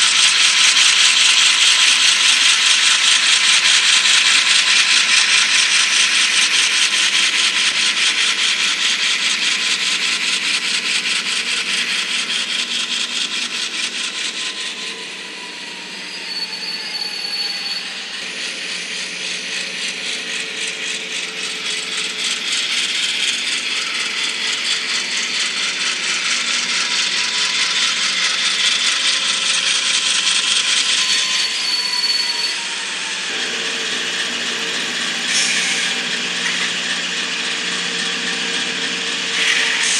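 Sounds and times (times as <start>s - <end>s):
model train wheels rattling: 0.0s - 14.9s, 18.2s - 31.6s, 33.2s - 39.9s
faint motor whine: 32.5s - 39.9s.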